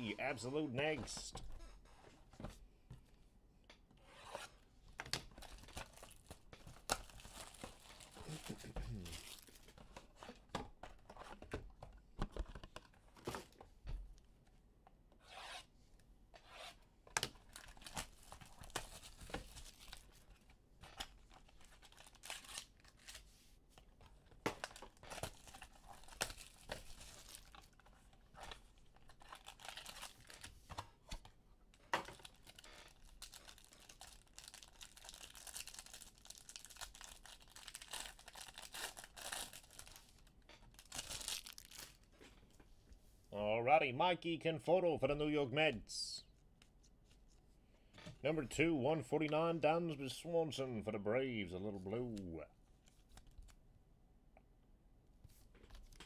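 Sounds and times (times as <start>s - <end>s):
wrappers tearing and crinkling: 5.4s - 9.7s, 21.3s - 23.2s, 24.6s - 27.8s, 29.1s - 30.5s, 32.2s - 42.1s.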